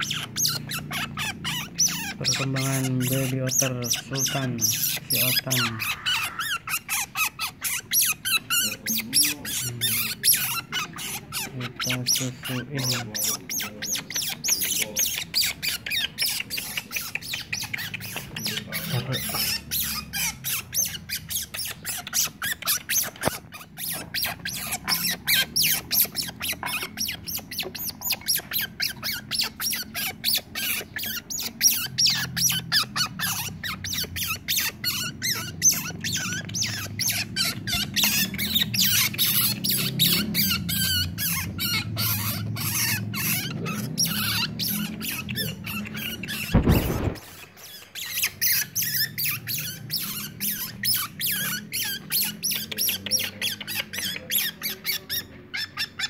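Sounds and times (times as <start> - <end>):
otter pup squeaking: 0.0 - 56.0.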